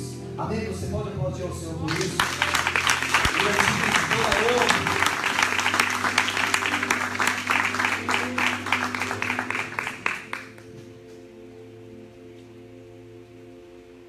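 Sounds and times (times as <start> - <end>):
congregation applauding: 1.9 - 11.0
held keyboard chord: 1.9 - 14.0.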